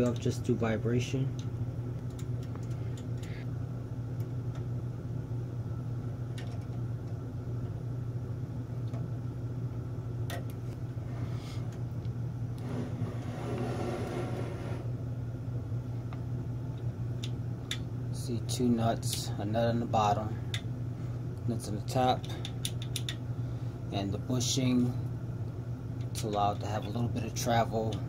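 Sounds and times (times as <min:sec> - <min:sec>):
low background hum: 0:00.0 - 0:28.0.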